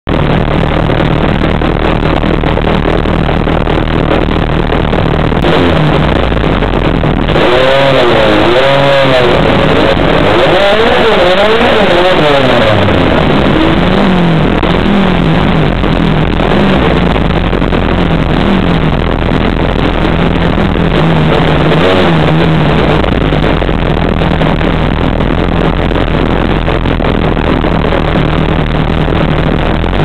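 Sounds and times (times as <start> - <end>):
car engine revving: 0.1 - 30.0.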